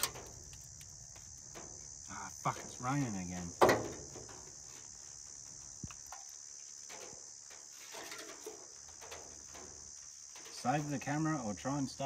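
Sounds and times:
insects droning: 0.0 - 12.0
faint clicks and knocks: 5.5 - 10.7.

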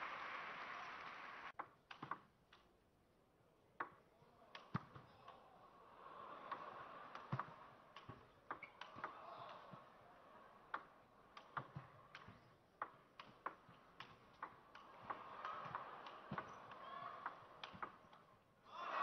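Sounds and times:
table tennis ball clicking: 10.7 - 18.2.

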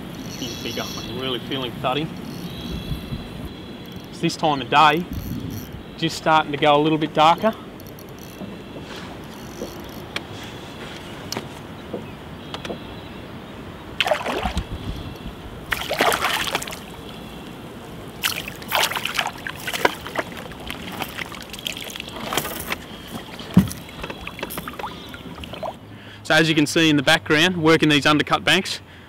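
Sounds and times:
fish splashing at water surface: 14.0 - 14.8, 15.7 - 17.2, 18.2 - 25.8.

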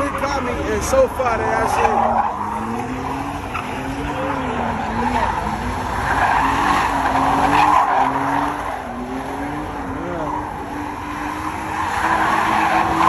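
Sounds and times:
car engine revving: 0.0 - 13.0
tyres screeching: 0.0 - 13.0.

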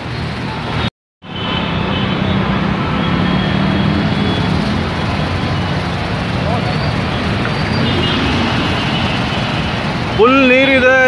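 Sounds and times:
motorbike engines running: 2.1 - 11.0
rushing water: 2.7 - 11.0.

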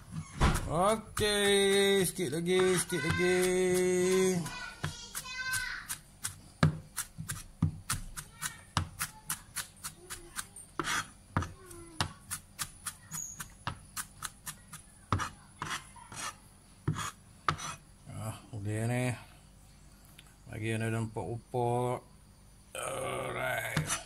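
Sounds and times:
knife chopping on cutting board: 0.4 - 17.8.

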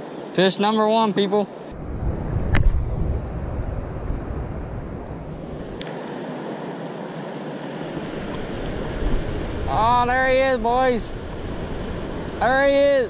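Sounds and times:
wind buffeting microphone: 1.7 - 5.8, 7.8 - 13.0
rushing churning water: 3.4 - 13.0.

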